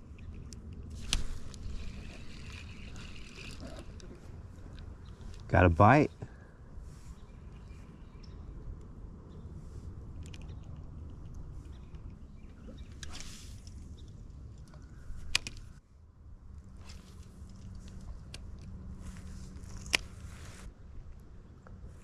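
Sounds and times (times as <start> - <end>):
fishing reel clicking and rattling: 1.0 - 4.0.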